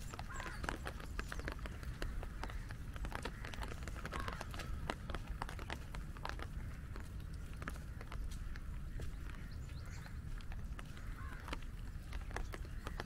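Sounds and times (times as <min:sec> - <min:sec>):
bird calling harshly: 0:00.0 - 0:00.9
raindrops tapping on an umbrella: 0:00.0 - 0:13.0.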